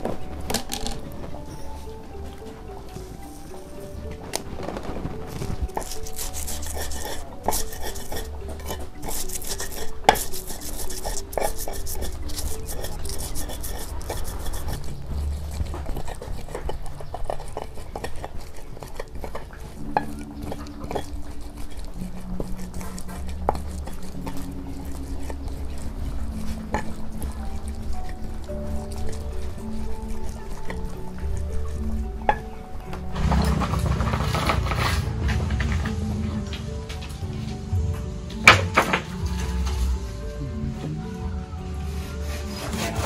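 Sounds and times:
stone pestle grinding in mortar: 5.3 - 36.1, 41.9 - 43.0.

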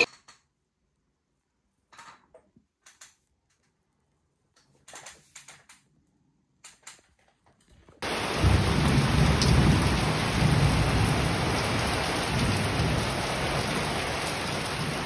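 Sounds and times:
heavy rain pouring: 8.0 - 15.0.

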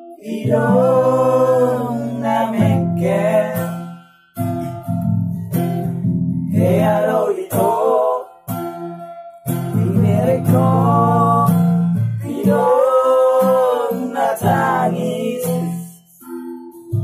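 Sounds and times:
man singing: 0.0 - 3.8, 6.5 - 8.5, 9.7 - 16.3
guitar strummed in chords: 0.0 - 17.0.

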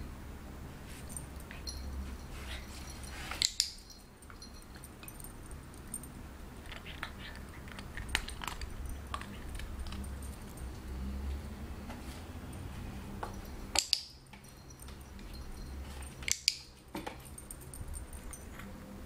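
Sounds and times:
dog claws ticking on tile: 6.6 - 10.7, 16.2 - 17.2.

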